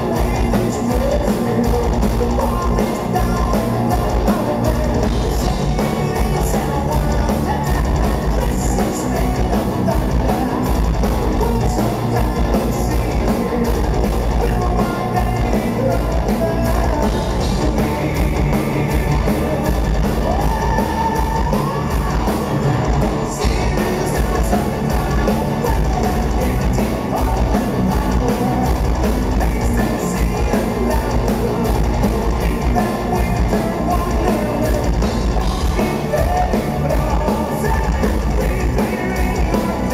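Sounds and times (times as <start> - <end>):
electric guitar: 0.0 - 39.9
fast drum beat: 0.0 - 39.9
male singer: 0.0 - 39.9.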